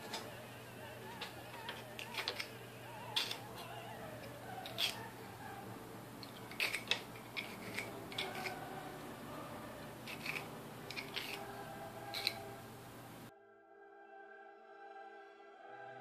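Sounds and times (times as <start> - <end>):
hand file rasping on brass: 1.2 - 5.6, 6.2 - 12.7.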